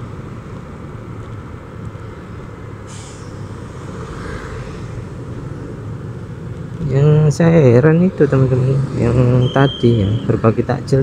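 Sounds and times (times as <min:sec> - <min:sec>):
road noise: 0:00.0 - 0:11.0
brief hiss: 0:02.9 - 0:03.5.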